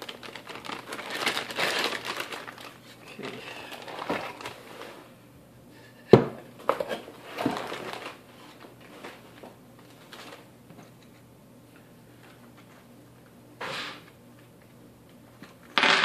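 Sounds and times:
cardboard packaging rustling: 0.0 - 5.0, 6.9 - 9.2, 9.9 - 10.5.

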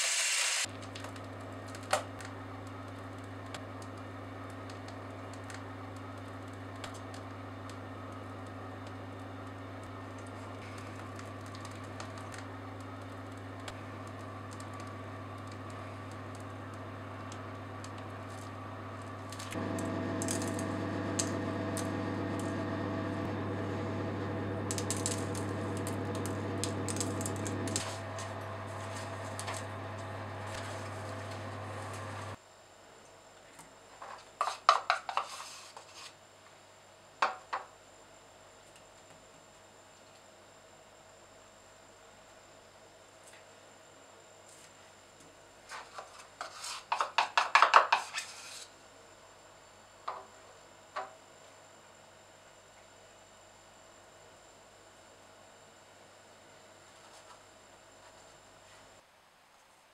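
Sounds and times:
steady low hum: 2.3 - 32.4.

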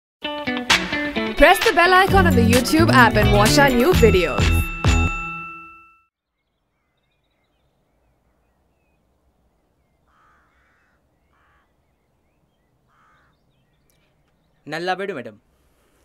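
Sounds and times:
faint small birds chirping: 6.2 - 16.0
faint crow caws: 9.8 - 14.4.

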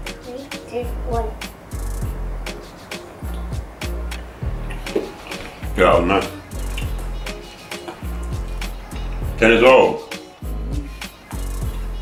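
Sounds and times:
music with deep bass and beat: 0.0 - 12.0.

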